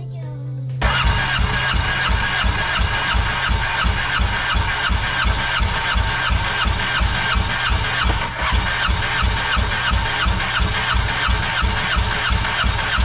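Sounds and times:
engine cranking without firing: 0.8 - 13.0.

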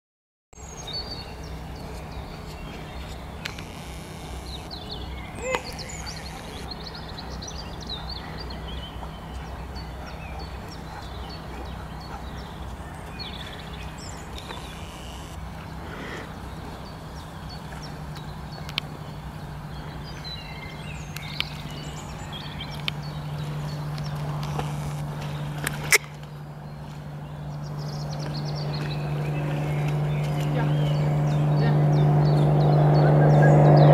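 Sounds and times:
small birds chirping: 0.6 - 33.9
steady low hum: 0.6 - 33.9.

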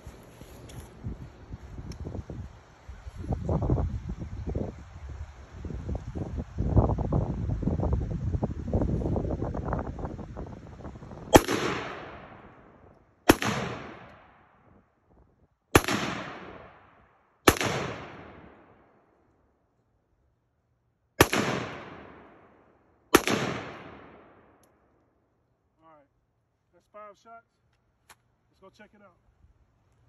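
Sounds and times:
rifle shots with echo: 11.3 - 14.5, 15.7 - 18.9, 21.2 - 24.6.

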